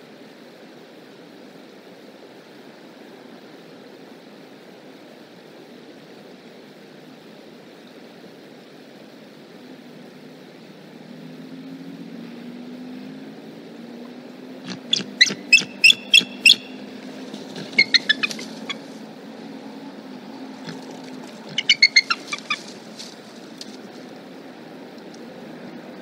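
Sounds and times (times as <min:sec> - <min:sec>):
eagles piping chatter: 0:14.6 - 0:19.0, 0:20.6 - 0:23.6.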